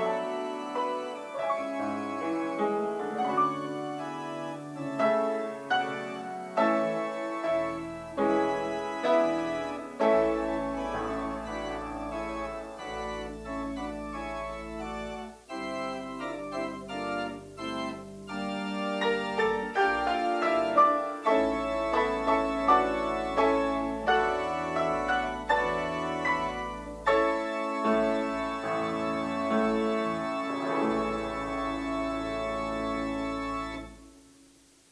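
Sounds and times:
church organ chords: 0.0 - 34.0
deep organ bass notes: 0.0 - 34.1.

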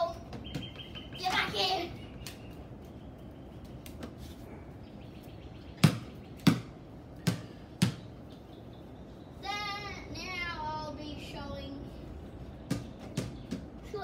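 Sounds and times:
basketball bouncing on tiled floor: 0.3 - 1.0, 5.8 - 8.1, 12.7 - 13.7.

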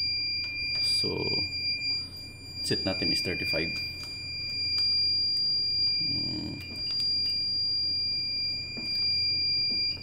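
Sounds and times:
high-pitched alarm tone: 0.0 - 10.0.

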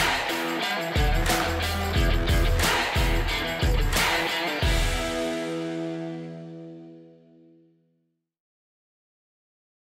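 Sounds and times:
background guitar music: 0.0 - 8.0.

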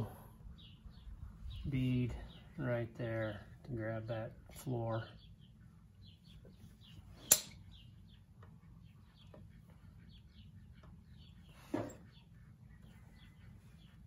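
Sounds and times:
faint birds chirping: 0.0 - 14.0
sharp click: 7.3 - 7.6.

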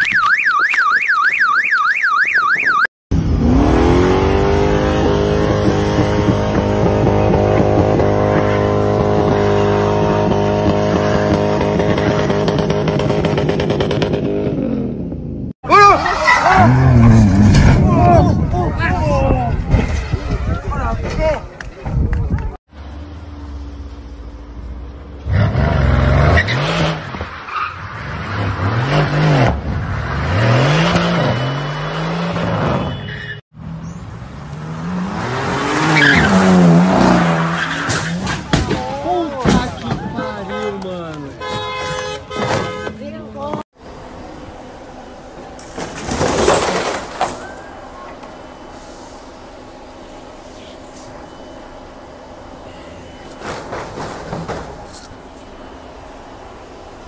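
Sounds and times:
car engine revving high: 3.1 - 14.6.

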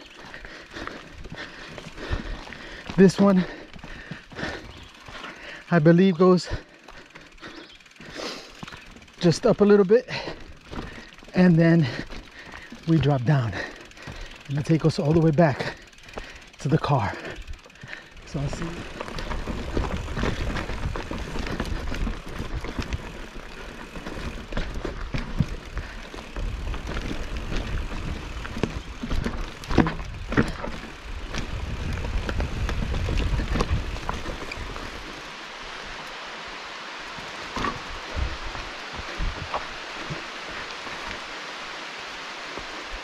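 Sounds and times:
mountain bike rattling over rocks: 0.0 - 43.0
steady hiss: 33.8 - 43.0.

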